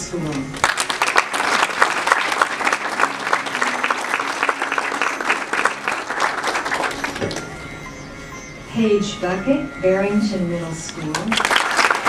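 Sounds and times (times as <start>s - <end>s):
audience applauding: 0.5s - 8.0s, 11.1s - 12.0s.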